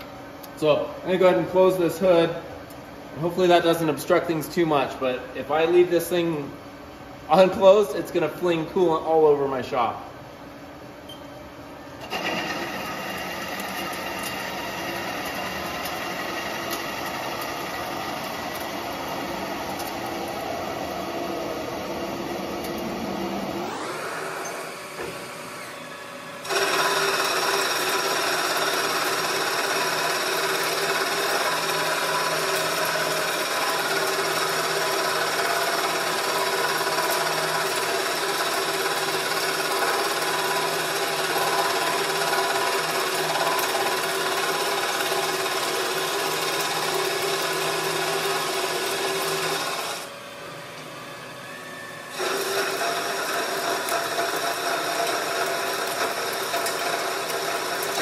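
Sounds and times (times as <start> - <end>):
metal lathe machining whir: 12.0 - 58.0.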